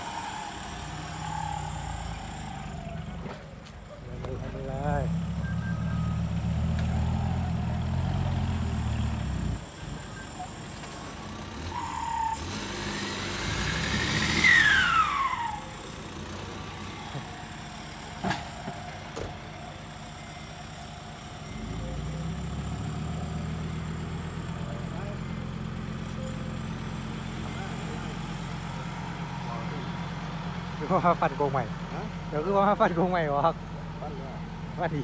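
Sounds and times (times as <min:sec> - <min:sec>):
tractor diesel engine running: 0:00.0 - 0:35.0
falling whistle: 0:05.4 - 0:06.4, 0:14.3 - 0:15.7.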